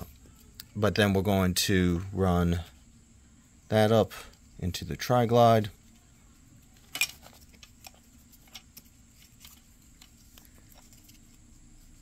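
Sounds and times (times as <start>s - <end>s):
strap rustling: 5.6s - 12.0s.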